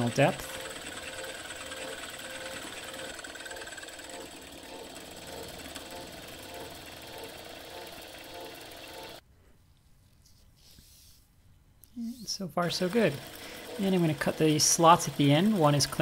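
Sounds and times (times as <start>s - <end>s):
milling machine cutting metal: 0.0s - 9.2s, 12.6s - 16.0s.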